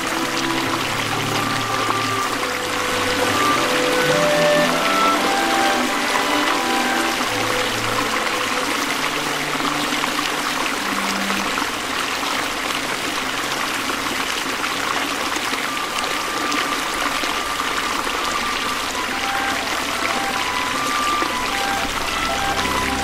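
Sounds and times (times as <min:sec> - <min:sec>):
stream flowing over stones: 0:00.0 - 0:23.0.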